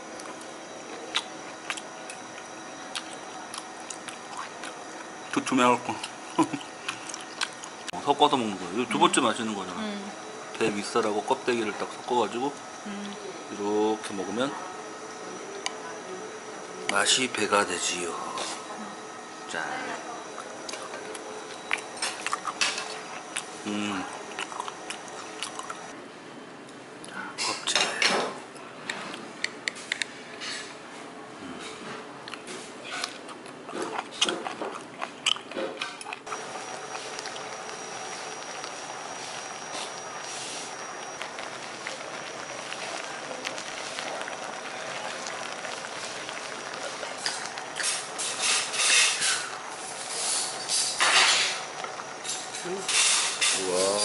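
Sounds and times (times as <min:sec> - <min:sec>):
soup boiling and bubbling: 0:00.0 - 0:19.5, 0:20.2 - 0:26.0, 0:36.2 - 0:54.0.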